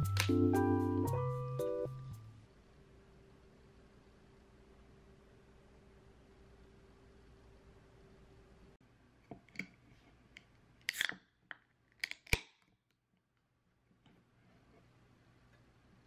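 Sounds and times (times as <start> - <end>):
can ring-pull cracking open: 10.8 - 11.2.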